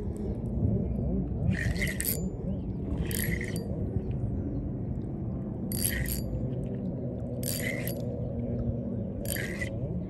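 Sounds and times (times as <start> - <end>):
low rumble: 0.0 - 10.0
spinning reel whirring: 1.5 - 2.3, 3.0 - 3.7, 5.7 - 6.3, 7.4 - 8.0, 9.3 - 9.7.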